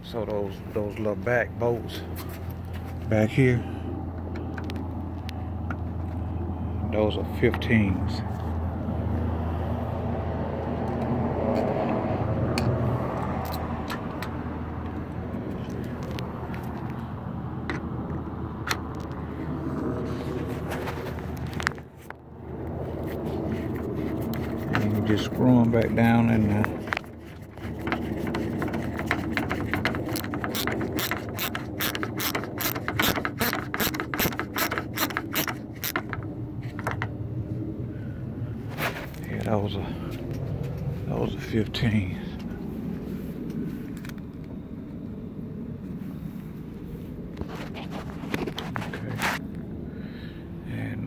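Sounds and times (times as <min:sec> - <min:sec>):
motor vehicle rumble: 0:00.0 - 0:51.0
hand tools clicking on metal: 0:28.6 - 0:36.2.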